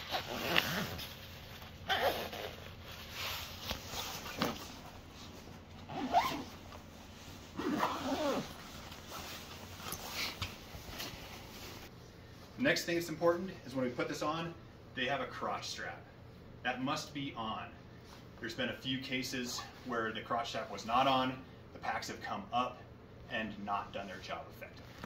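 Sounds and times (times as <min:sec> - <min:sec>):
zipper being pulled shut: 0:00.0 - 0:01.2, 0:01.8 - 0:04.8, 0:05.8 - 0:06.7, 0:07.6 - 0:09.2.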